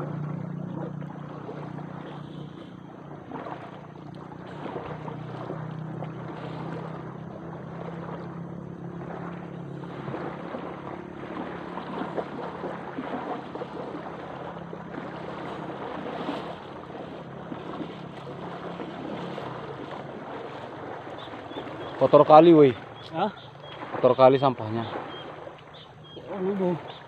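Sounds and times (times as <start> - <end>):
low engine drone: 0.0 - 27.0
person wading through water: 0.0 - 27.0
water lapping at shore: 0.0 - 27.0.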